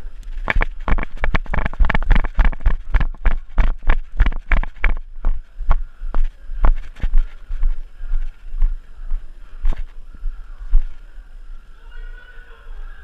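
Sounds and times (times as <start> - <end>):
running footsteps thudding: 0.4 - 10.0.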